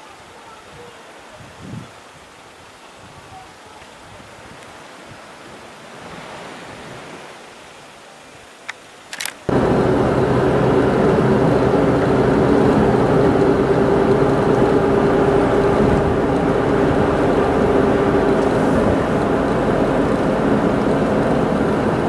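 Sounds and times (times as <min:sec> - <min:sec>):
faint clicks: 0:08.6 - 0:09.5
car road and engine drone: 0:09.5 - 0:22.0.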